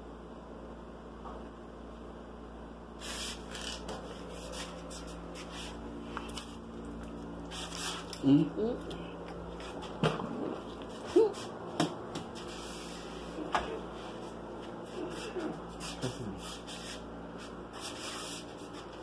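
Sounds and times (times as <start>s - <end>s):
low voice-like sounds: 10.3s - 11.5s, 15.0s - 16.5s.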